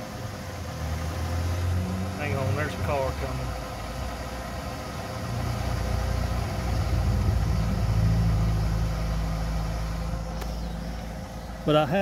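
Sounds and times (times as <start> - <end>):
car driving past: 0.7 - 3.5, 5.3 - 11.0.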